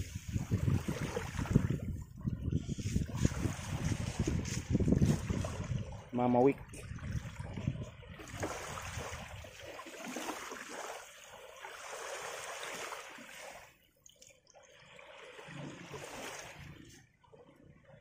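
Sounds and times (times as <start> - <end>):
small waves washing on sand: 2.6 - 13.8, 14.6 - 17.0.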